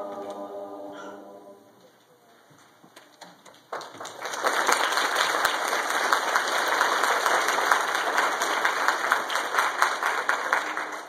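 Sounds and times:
congregation applauding: 0:03.6 - 0:11.0.

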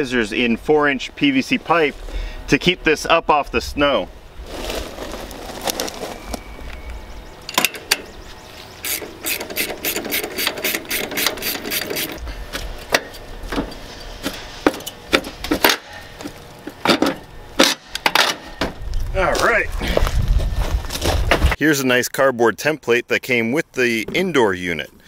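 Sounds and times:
sharp metallic clicks: 0:08.8 - 0:12.2.

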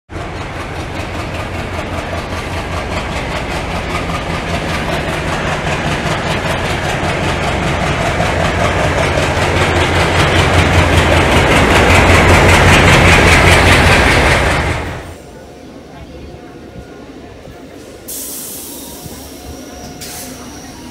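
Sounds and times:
train wheels clattering on rail joints: 0:00.1 - 0:15.1
locomotive hum: 0:00.1 - 0:20.9.

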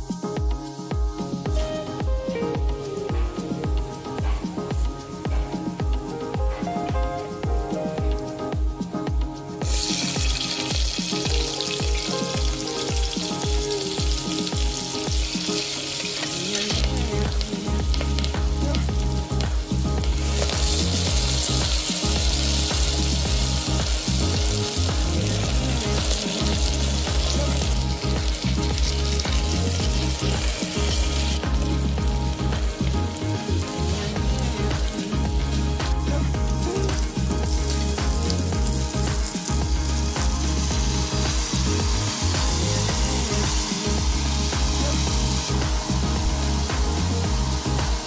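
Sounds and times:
vegetables sizzling in hot oil: 0:09.6 - 0:48.0.

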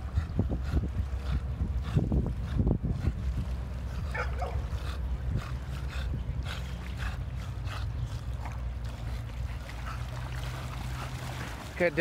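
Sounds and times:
distant boat engine drone: 0:00.0 - 0:12.0
dog splashing in water: 0:08.3 - 0:12.0.

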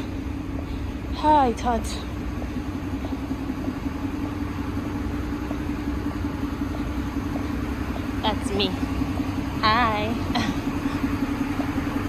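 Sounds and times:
faint footsteps: 0:00.0 - 0:09.6
bus engine idling: 0:00.0 - 0:12.0.

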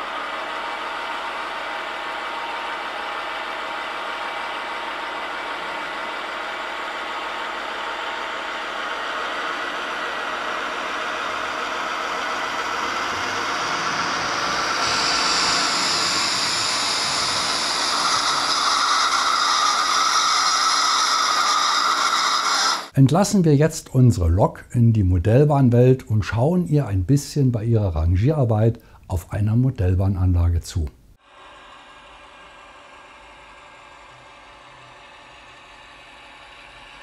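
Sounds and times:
model diesel engine sound: 0:01.2 - 0:23.0.

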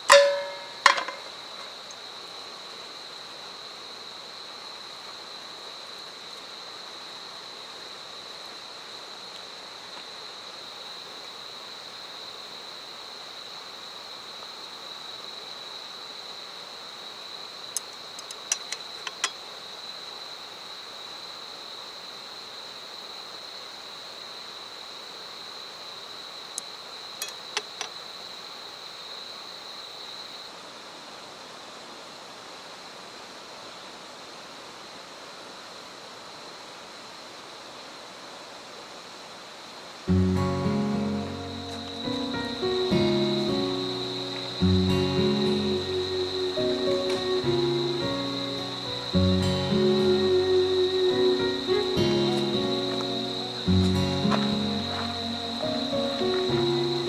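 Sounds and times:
night insects chirring: 0:00.0 - 0:57.0
chopsticks tapping metal plate: 0:00.1 - 0:01.3, 0:18.5 - 0:19.4.

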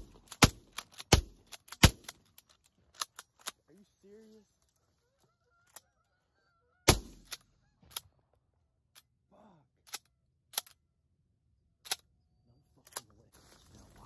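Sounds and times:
shotgun shot: 0:06.9 - 0:07.3.

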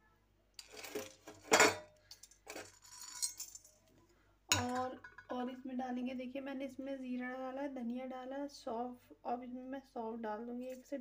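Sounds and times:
kitchen utensils clinking: 0:00.6 - 0:03.9, 0:04.5 - 0:05.3.

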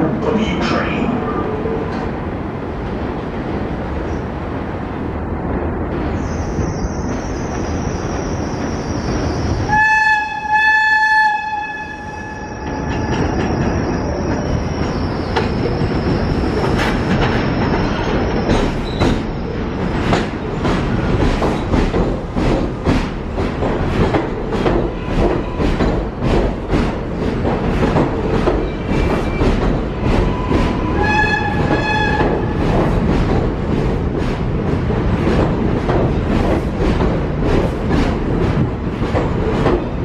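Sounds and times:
train rumble: 0:00.0 - 0:40.0
train horn blasts: 0:09.7 - 0:12.5, 0:31.0 - 0:32.4
wheels clacking over rail joints: 0:12.6 - 0:40.0.

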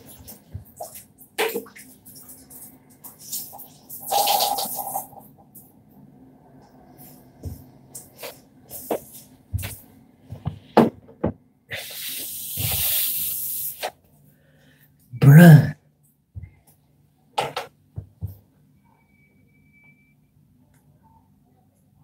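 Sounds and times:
loud burst of voice: 0:15.2 - 0:15.8.

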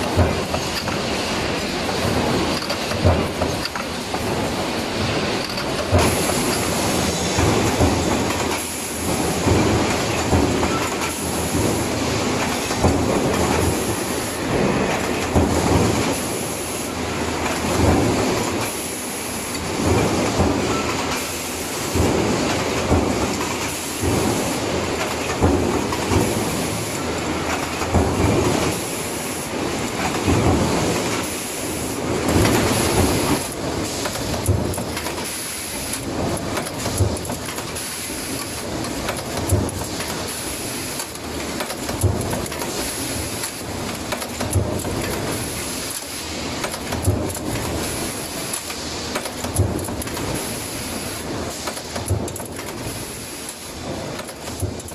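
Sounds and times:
stamping press clattering: 0:00.0 - 0:16.2, 0:32.2 - 0:54.9
shop machinery noise: 0:00.0 - 0:54.9.

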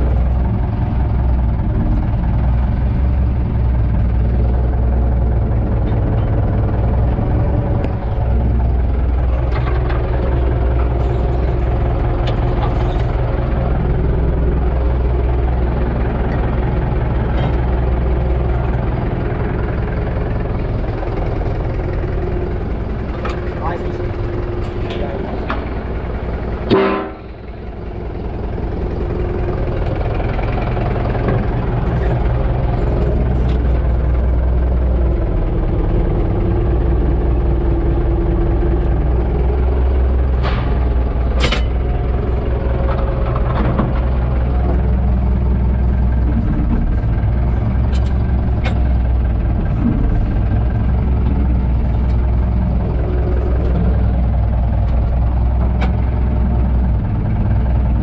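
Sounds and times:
tractor diesel engine running: 0:00.0 - 0:58.0
loud clunk: 0:26.6 - 0:27.4, 0:40.3 - 0:41.9.

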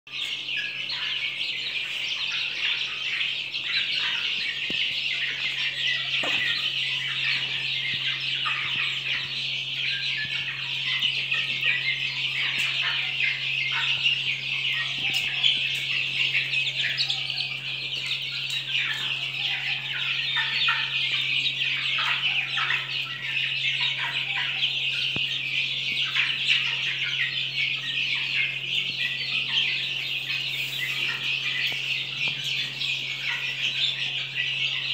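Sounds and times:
chicks peeping: 0:00.1 - 0:34.9.

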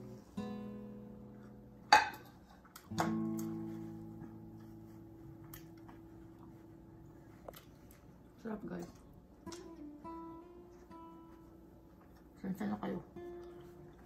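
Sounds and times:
plucked guitar music: 0:00.0 - 0:06.4, 0:09.4 - 0:11.6, 0:13.1 - 0:14.0.

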